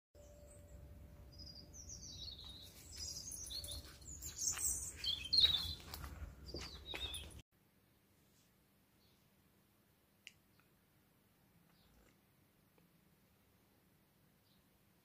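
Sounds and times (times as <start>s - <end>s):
small birds chirping and singing: 0.2s - 7.4s.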